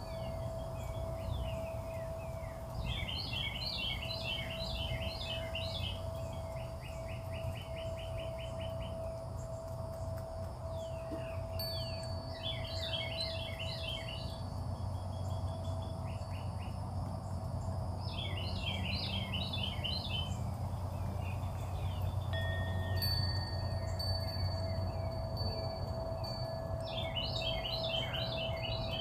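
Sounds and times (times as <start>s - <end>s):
held ringing tones: 0.0s - 16.6s, 22.2s - 29.0s
low steady hum: 0.0s - 29.0s
songbird singing: 0.0s - 29.0s.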